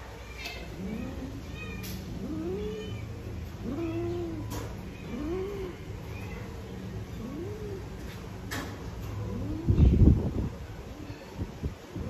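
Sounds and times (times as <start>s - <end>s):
cat yowling: 0.2s - 7.8s.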